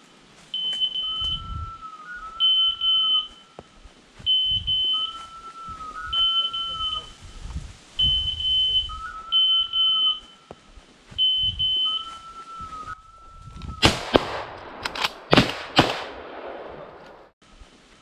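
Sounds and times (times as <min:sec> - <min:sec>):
rustling: 0:00.0 - 0:13.8
beeper collar beeping: 0:02.4 - 0:03.4, 0:04.3 - 0:05.3, 0:06.1 - 0:07.2, 0:08.0 - 0:10.4, 0:11.2 - 0:12.3
sharp cracks: 0:13.6 - 0:17.4.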